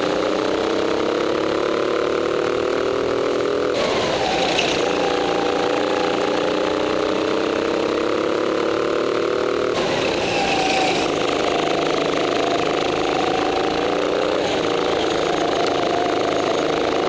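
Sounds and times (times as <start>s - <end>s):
go-kart engine running hard: 0.0s - 17.0s
high tyre squeal: 3.0s - 17.0s.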